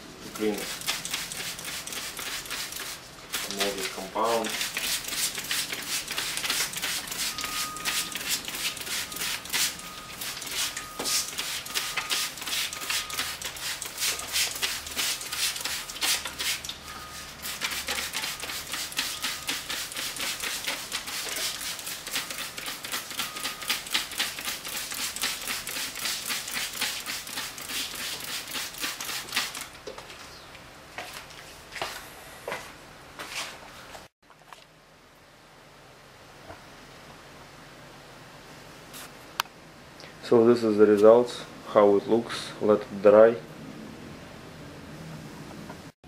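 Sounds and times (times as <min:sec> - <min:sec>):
spray bottle squirts: 0:00.5 - 0:29.7.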